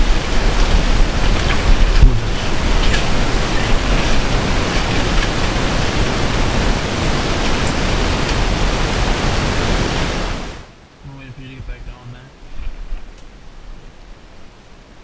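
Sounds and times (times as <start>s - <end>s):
loud rushing noise: 0.0s - 10.7s.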